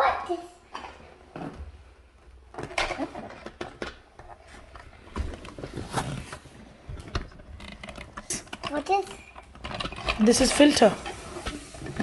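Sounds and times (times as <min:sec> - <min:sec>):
plastic parts clicking and rattling: 0:02.5 - 0:12.0.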